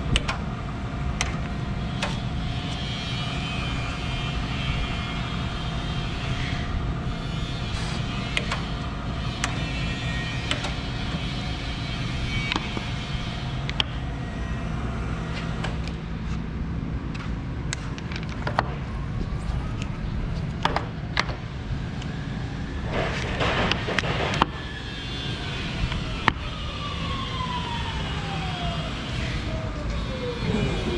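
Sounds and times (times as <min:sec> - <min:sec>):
sharp clicks and knocks: 0:00.1 - 0:00.4
surface grinder humming: 0:30.3 - 0:30.9.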